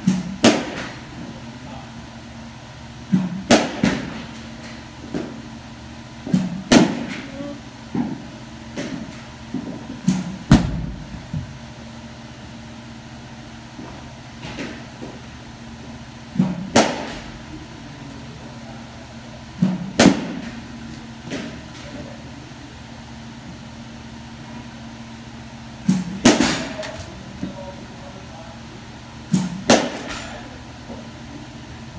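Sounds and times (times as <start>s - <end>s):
low steady hum: 0.0s - 31.9s
bat cracking a ball: 0.1s - 1.0s, 3.4s - 4.4s, 6.3s - 7.3s, 16.4s - 17.3s, 19.6s - 20.6s, 25.9s - 26.8s, 29.4s - 30.4s.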